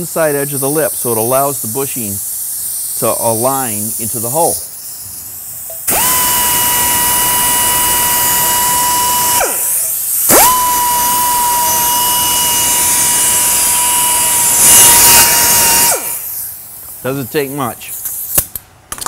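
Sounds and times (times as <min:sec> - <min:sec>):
die grinder whining: 0:05.9 - 0:16.4.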